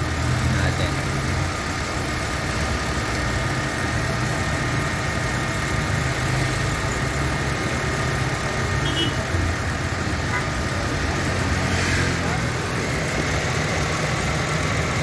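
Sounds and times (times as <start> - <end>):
air conditioning compressor whine: 0.0 - 15.0
car engine idling: 0.0 - 15.0.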